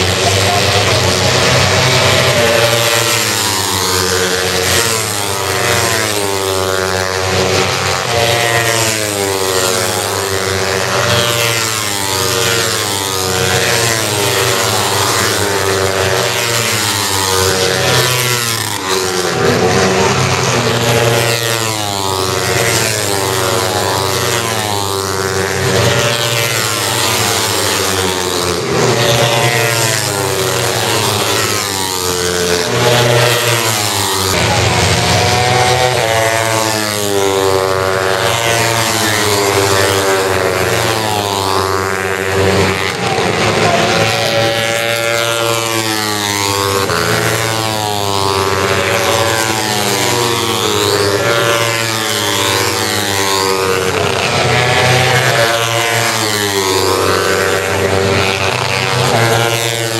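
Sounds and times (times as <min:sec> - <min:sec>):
racing motorcycles passing: 0:00.0 - 0:59.9.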